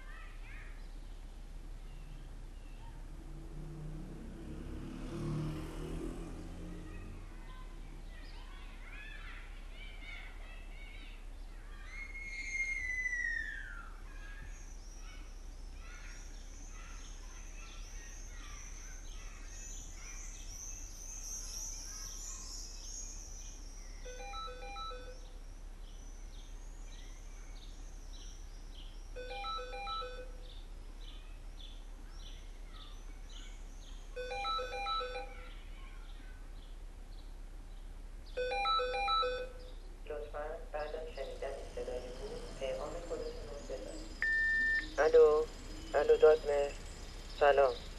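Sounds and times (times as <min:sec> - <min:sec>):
birds chirping: 0:00.0 - 0:47.9
telephone ringing electronic beeps: 0:24.1 - 0:25.2, 0:29.2 - 0:30.4, 0:34.2 - 0:35.4, 0:38.4 - 0:39.6, 0:44.2 - 0:44.9.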